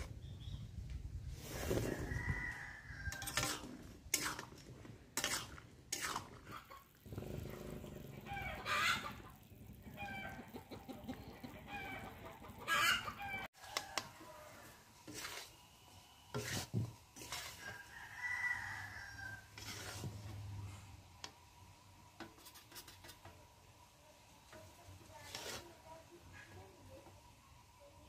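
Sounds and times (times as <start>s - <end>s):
chickens clucking: 6.4s - 13.5s.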